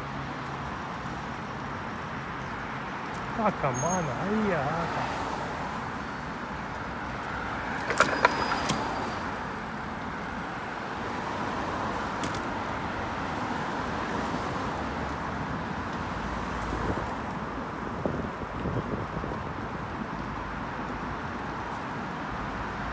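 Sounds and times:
road traffic: 0.0 - 22.9
metallic clicks and rattles: 7.7 - 9.2.

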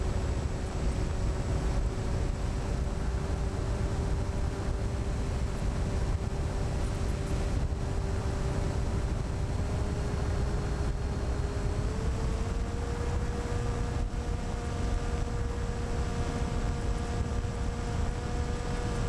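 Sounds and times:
electric motor and propeller whine: 0.0 - 19.0
wind rush on microphone: 0.0 - 19.0.

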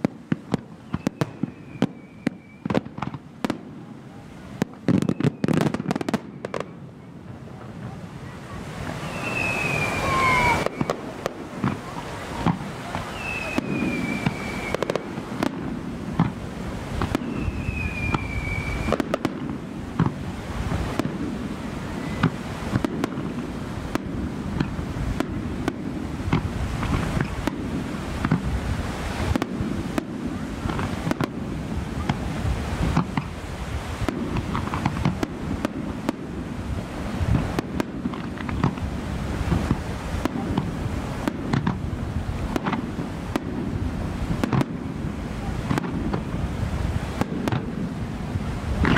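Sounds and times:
falling firework whistle: 0.0 - 3.6, 4.8 - 7.1, 8.2 - 25.8, 26.8 - 28.5
fireworks bangs and crackling: 0.0 - 48.9.

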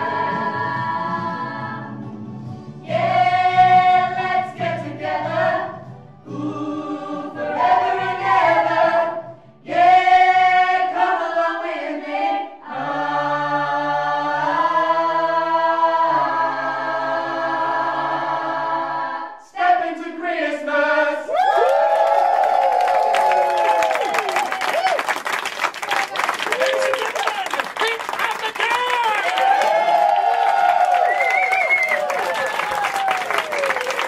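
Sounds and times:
group singing in harmony: 0.0 - 2.2, 2.8 - 21.4
cheering and clapping: 21.3 - 34.0.

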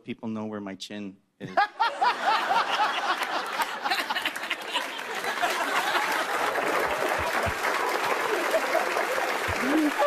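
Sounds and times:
audience laughter: 1.5 - 10.0
audience applauding: 2.2 - 10.0.

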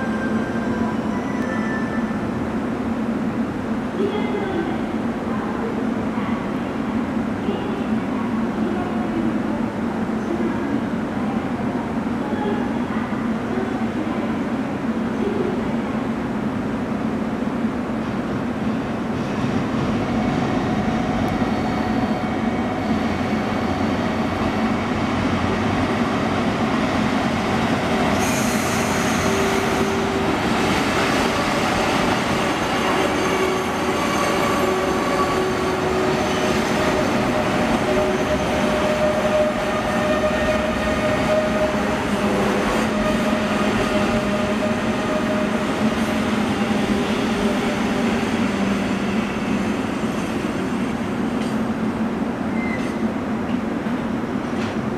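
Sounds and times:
train wheels rumbling on rails: 18.1 - 54.9.

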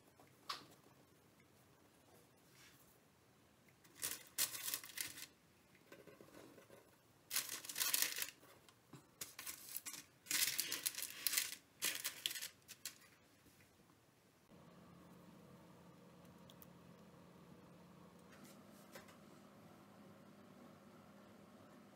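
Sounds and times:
baking paper crinkling: 3.9 - 5.4, 7.3 - 13.2.

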